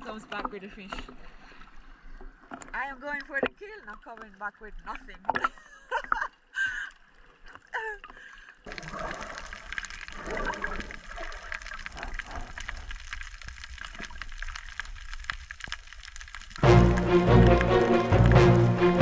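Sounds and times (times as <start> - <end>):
small underwater clicks: 0.0 - 18.4
underwater hiss and gurgle: 8.6 - 16.6.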